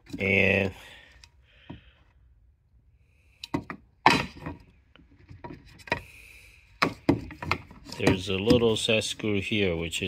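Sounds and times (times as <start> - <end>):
hard plastic clicking and knocking: 3.4 - 6.0, 6.8 - 8.9.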